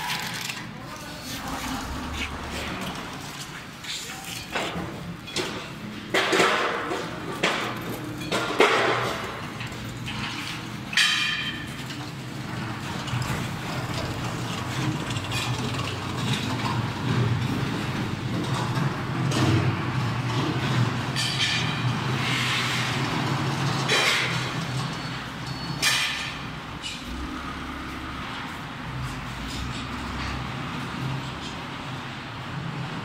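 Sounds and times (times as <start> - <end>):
metal bangs and knocks: 4.4 - 31.7
low machine rumble: 26.8 - 30.3.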